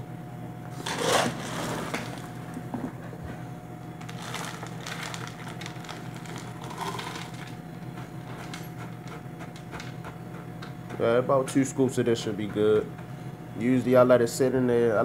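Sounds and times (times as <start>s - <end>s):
dry kibble rattling into bowl: 4.0s - 7.6s.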